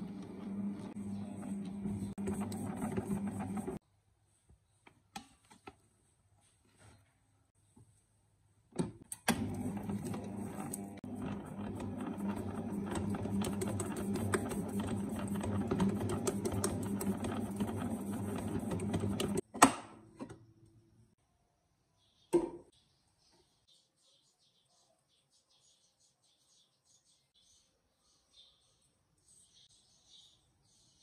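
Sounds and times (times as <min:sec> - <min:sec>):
stand mixer motor humming: 0:00.0 - 0:03.8, 0:09.3 - 0:19.4.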